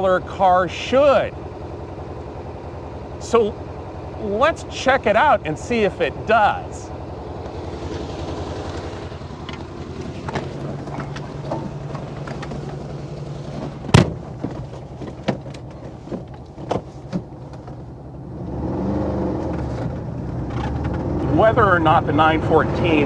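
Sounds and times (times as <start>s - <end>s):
car engine idling: 0.0s - 18.6s, 19.3s - 23.0s
car door slamming: 9.5s - 17.8s.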